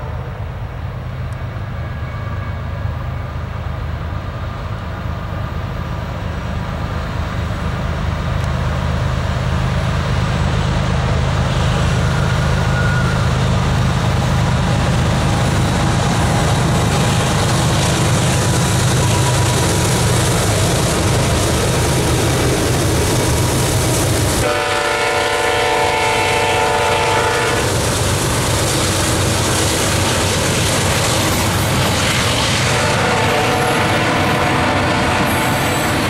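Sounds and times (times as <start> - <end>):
locomotive engine rumble: 0.0 - 36.0
train wheels clickety-clack: 6.2 - 36.0
locomotive horn: 24.4 - 27.8, 32.6 - 36.0.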